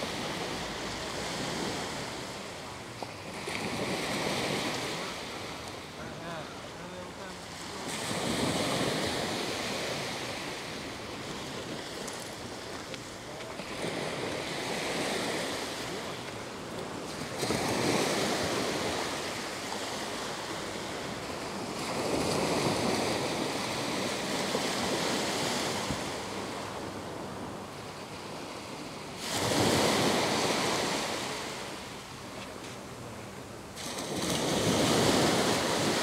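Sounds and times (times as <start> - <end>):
small waves breaking on sand: 0.0 - 36.0.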